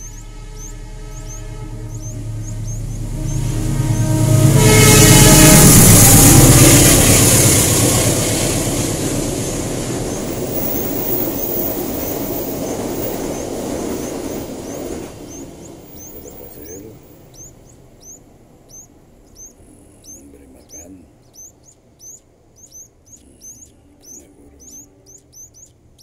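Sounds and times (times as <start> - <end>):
faint high chirps: 0.0 - 4.5, 9.3 - 26.0
vehicle passing with horn-like tone: 0.0 - 20.8.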